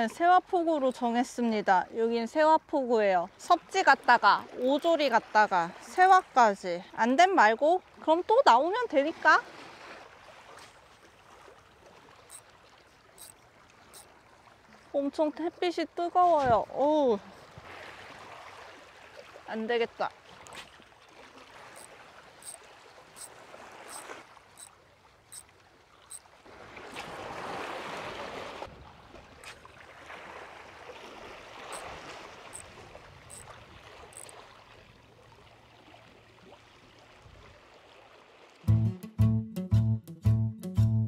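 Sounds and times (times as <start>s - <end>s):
small waves washing on rocks: 26.4s - 34.9s.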